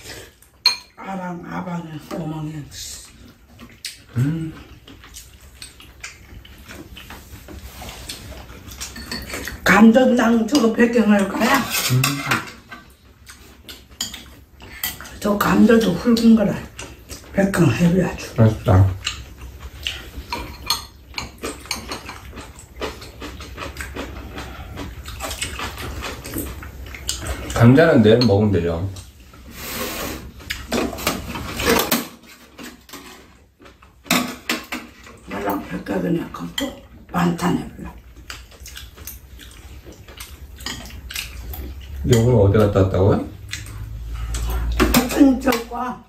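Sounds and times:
chopsticks and spoons clinking bowls: 0.6 - 1.0, 3.6 - 29.2, 30.4 - 45.8
chewing: 3.0 - 9.6, 11.2 - 15.2, 15.8 - 17.4, 18.3 - 28.0, 30.3 - 31.5, 36.3 - 45.0
slurping soup: 29.4 - 31.6.

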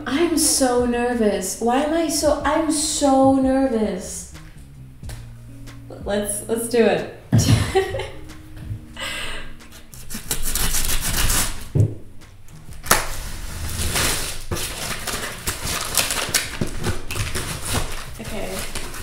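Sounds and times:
paper rustling and tearing: 9.7 - 11.7, 12.7 - 19.0
scraping on cardboard: 9.7 - 11.7, 12.8 - 19.0
box cutter slicing tape: 9.8 - 11.7, 12.7 - 19.0.

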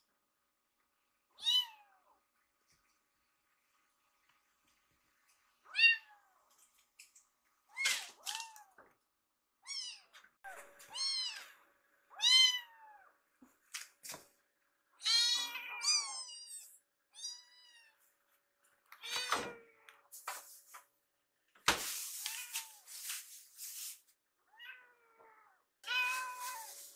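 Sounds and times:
kittens meowing: 15.0 - 18.0
rustling: 21.7 - 24.1, 26.0 - 26.9.

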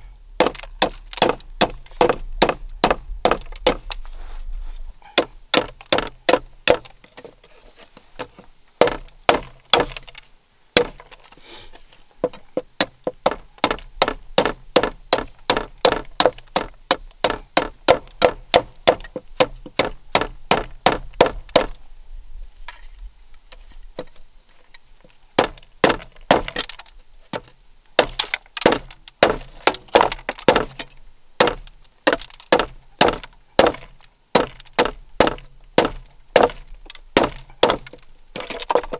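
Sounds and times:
knife chopping bamboo: 37.2 - 38.9.

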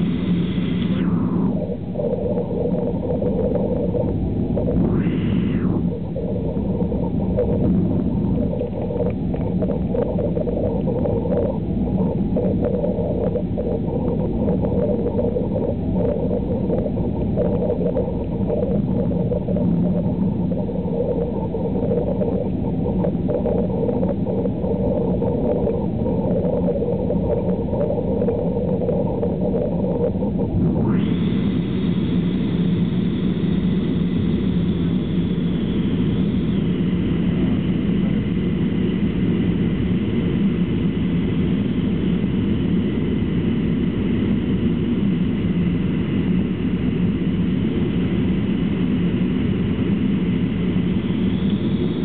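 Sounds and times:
rushing airflow: 0.0 - 33.6
jet engines drone: 0.0 - 52.0.

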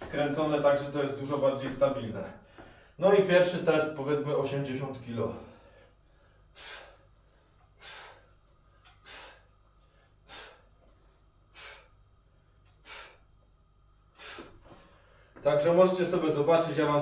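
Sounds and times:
man breathing out sharply: 5.6 - 10.8, 11.5 - 12.0, 12.7 - 13.3, 14.1 - 15.4.

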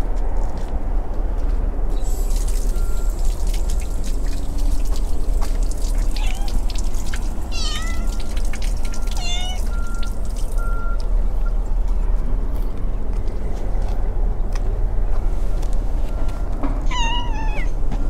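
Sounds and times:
cat meowing: 6.1 - 6.6, 7.5 - 8.2, 9.2 - 9.7, 16.9 - 17.8.

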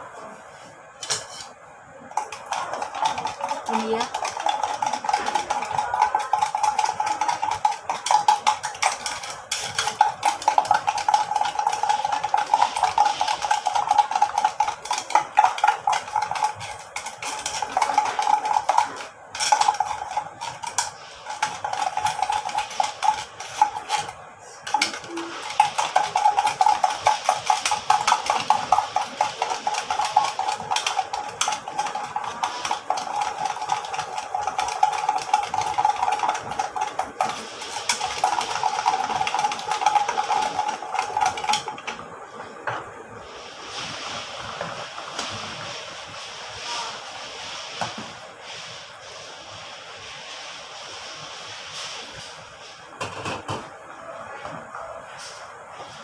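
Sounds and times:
whisk clinking against glass bowl: 2.1 - 42.0.

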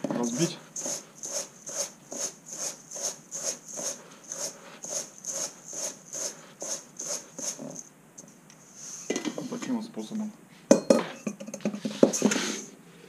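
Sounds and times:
gritty rubbing in a metal bowl: 0.2 - 7.9.

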